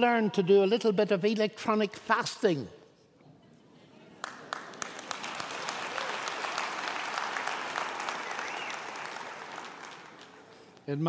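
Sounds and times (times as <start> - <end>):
audience applause: 4.2 - 10.7.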